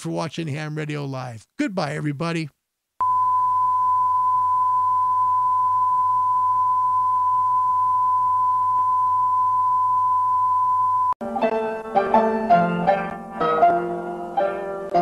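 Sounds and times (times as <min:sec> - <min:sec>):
steady high-pitched tone: 0:03.0 - 0:11.2.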